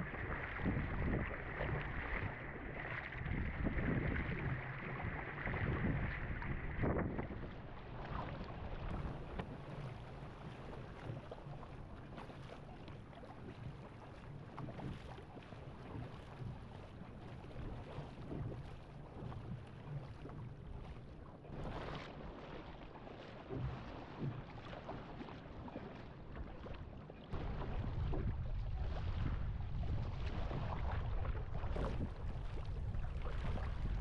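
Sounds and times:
wind buffeting microphone: 0.0 - 7.7, 27.3 - 34.0
paddle strokes splashing: 0.0 - 34.0
water rushing past hull: 0.0 - 34.0.

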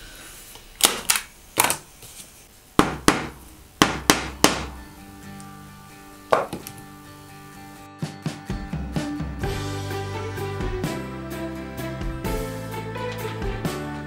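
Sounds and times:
staple gun and hammer strikes: 2.8 - 4.8
background music: 3.1 - 14.0.

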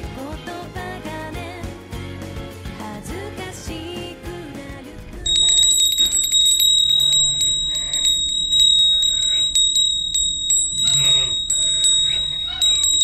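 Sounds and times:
bell ringing rapidly: 5.3 - 13.0.

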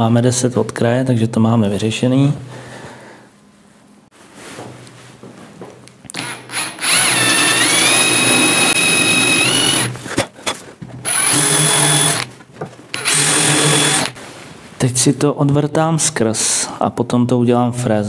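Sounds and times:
cordless drill motor whine: 6.1 - 10.0, 11.0 - 12.3, 12.9 - 14.2.

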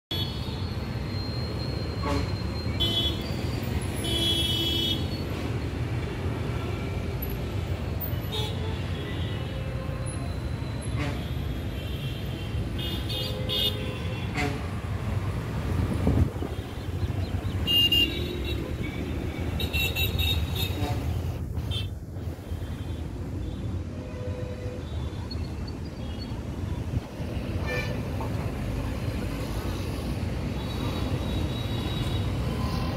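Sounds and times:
road traffic rumble: 0.1 - 32.9
vehicle horns tooting: 1.9 - 5.2, 17.6 - 21.9.

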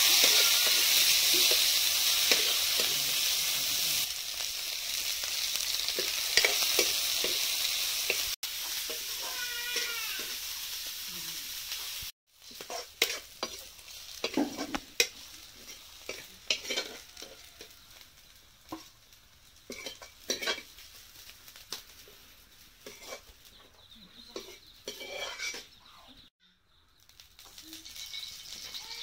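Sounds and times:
hiss: 0.0 - 4.1
metal spatula scraping in wok: 0.0 - 4.1, 5.0 - 11.0, 11.7 - 18.0, 19.6 - 21.3, 22.8 - 23.3, 24.3 - 25.8
food sizzling: 0.0 - 29.0.

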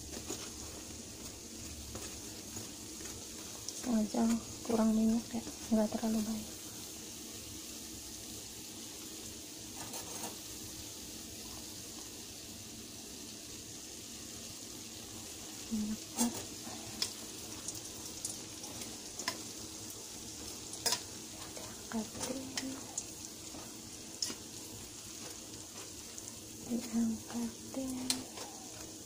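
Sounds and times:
dough sizzling in oil: 0.0 - 29.0
metal tongs tapping pan: 18.2 - 19.5, 20.8 - 21.1, 27.9 - 28.6.

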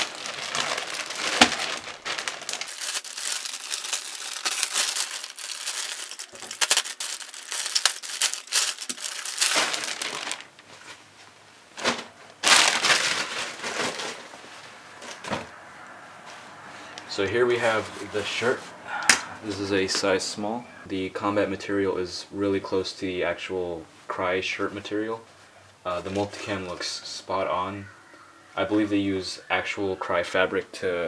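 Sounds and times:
plastic bag crinkling: 0.0 - 11.0, 11.8 - 15.5.

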